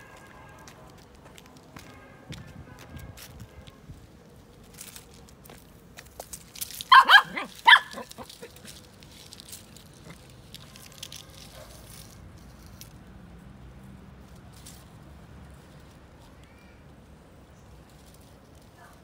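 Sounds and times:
small dog barking: 6.9 - 8.4.

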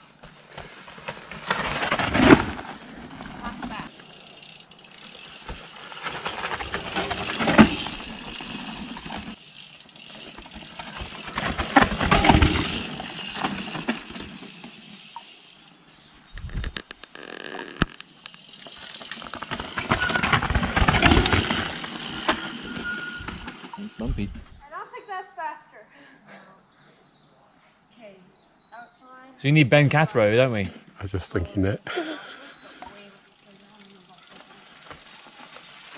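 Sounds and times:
bike tyres on loose ground: 0.0 - 24.5, 32.6 - 35.9
bikes rattling over bumps: 0.0 - 24.6, 32.0 - 35.9.

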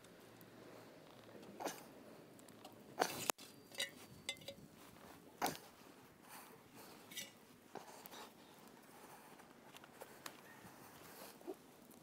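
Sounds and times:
light metal clinks: 3.2 - 4.7, 7.1 - 7.4.

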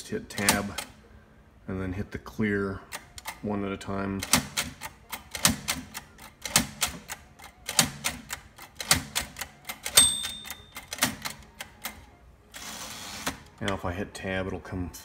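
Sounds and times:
typewriter carriage clacking: 0.3 - 0.9, 4.2 - 12.0
typewriter keys pressed: 4.2 - 12.0
typewriter bell ringing: 9.8 - 11.3.

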